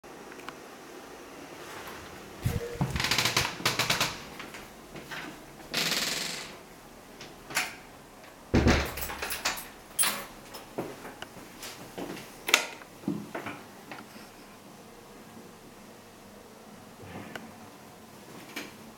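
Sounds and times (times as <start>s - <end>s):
door thumping: 8.6s - 9.2s.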